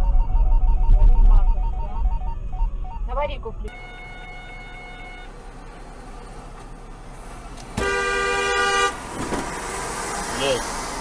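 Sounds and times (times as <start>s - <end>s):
road noise rumble: 0.0s - 11.0s
car horn blast: 3.7s - 5.4s, 7.8s - 9.0s.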